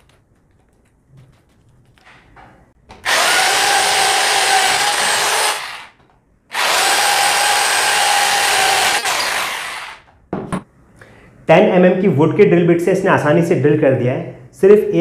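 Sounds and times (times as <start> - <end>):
drill motor whine: 3.1 - 5.9, 6.5 - 10.0.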